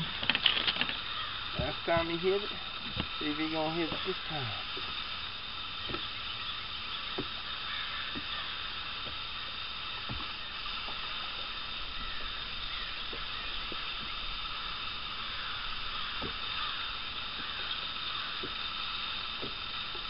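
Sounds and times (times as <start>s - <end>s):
steady hiss: 0.0s - 20.0s
water lapping: 0.0s - 20.0s.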